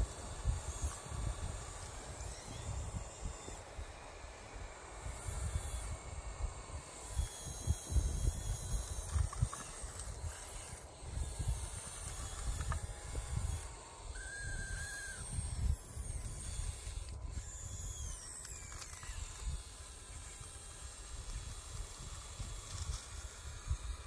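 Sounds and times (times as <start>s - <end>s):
electric motors whining: 0.0s - 24.0s.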